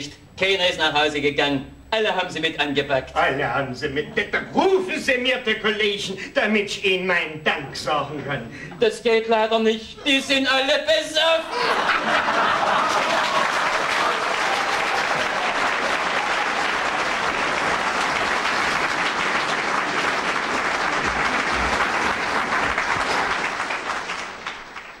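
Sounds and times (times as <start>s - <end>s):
audience applauding: 11.6s - 25.0s.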